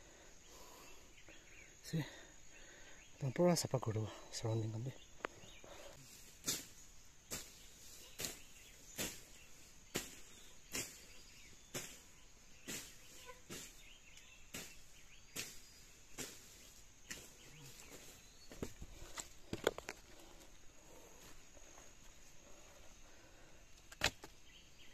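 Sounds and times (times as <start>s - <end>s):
blade swishing through grass: 6.1s - 18.2s.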